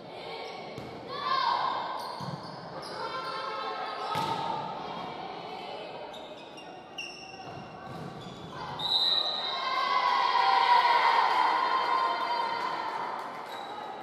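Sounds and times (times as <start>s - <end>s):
sneakers squeaking on gym floor: 2.0s - 4.4s, 6.0s - 9.4s
crowd cheering and shouting: 9.4s - 13.1s.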